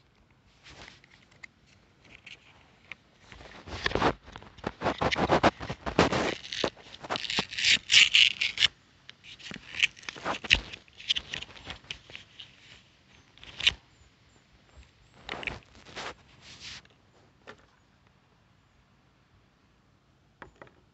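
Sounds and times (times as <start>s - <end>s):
crinkly handling rustling: 0.6s - 13.8s, 15.1s - 17.8s.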